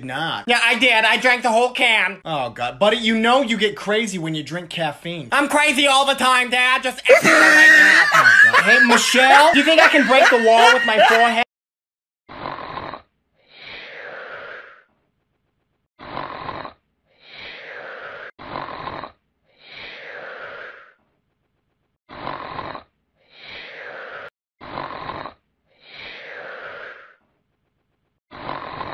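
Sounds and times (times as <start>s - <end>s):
puppy snoring: 12.3s - 14.8s, 16.0s - 20.9s, 22.1s - 22.9s, 24.0s - 27.2s, 28.3s - 28.9s.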